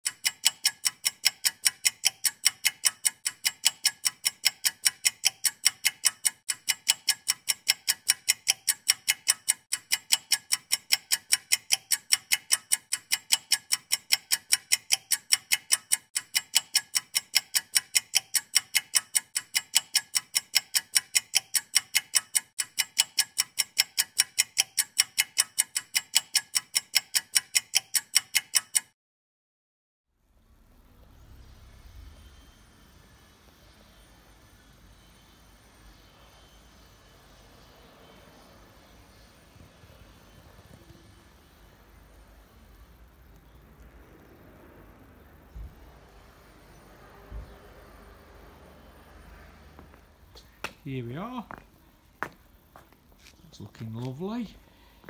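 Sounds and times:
clock ticking: 0:00.0 - 0:29.0, 0:50.9 - 0:51.6, 0:52.2 - 0:54.9.

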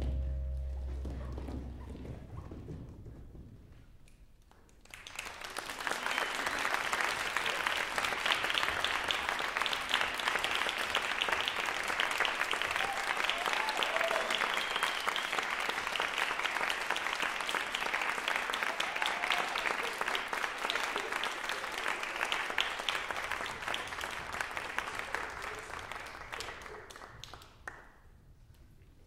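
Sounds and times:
audience applauding: 0:04.8 - 0:27.9.

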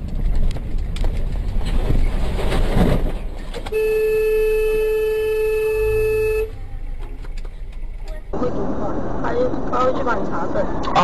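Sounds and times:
engine and road noise: 0:00.0 - 0:11.0
car horn blast: 0:03.7 - 0:06.6.

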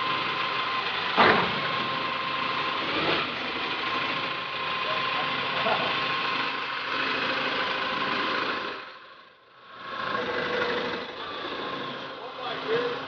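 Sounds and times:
forklift diesel engine running: 0:00.0 - 0:13.0.

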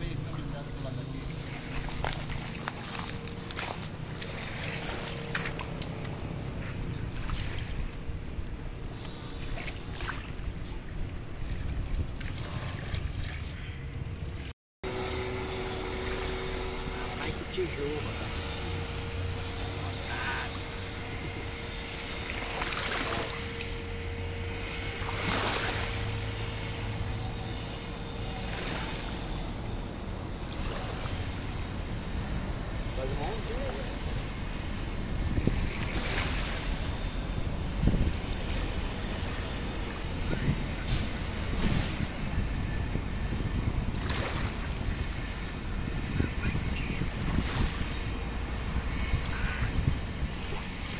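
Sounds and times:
rushing water and wind: 0:00.0 - 0:50.9
electric motor humming: 0:14.8 - 0:35.6
wind buffeting microphone: 0:31.4 - 0:50.9.

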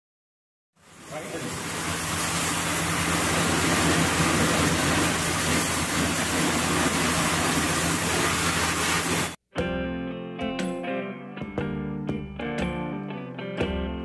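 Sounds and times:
even hiss: 0:00.8 - 0:09.4.

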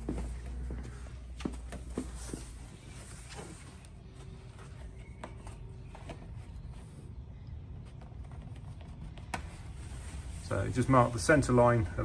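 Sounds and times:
canvas rustling: 0:01.8 - 0:05.1.

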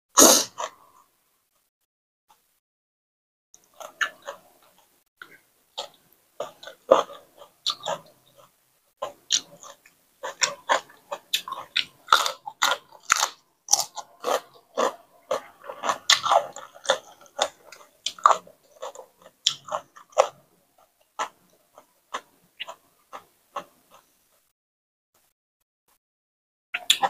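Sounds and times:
chewing and crunching: 0:03.6 - 0:24.1
wet mouth noises: 0:26.8 - 0:27.0.

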